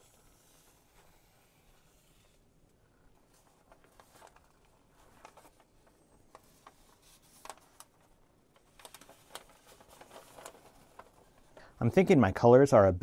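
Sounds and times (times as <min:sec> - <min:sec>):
wet paper rustling and crackling: 0:03.0 - 0:11.7.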